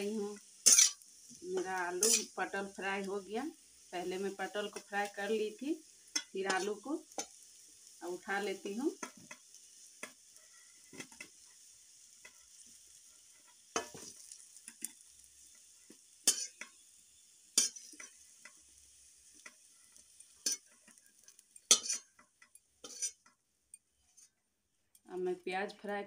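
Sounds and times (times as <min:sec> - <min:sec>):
hot oil sizzling: 0:00.0 - 0:25.9
spatula scraping a pan: 0:00.3 - 0:02.4, 0:09.0 - 0:16.8, 0:17.6 - 0:24.4.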